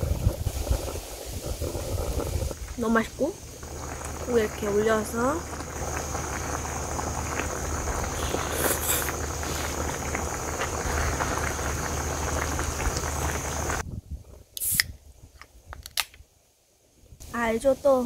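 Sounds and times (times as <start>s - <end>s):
stew bubbling in a pan: 0.0s - 13.8s
can being cracked open: 14.6s - 15.0s, 15.7s - 16.2s.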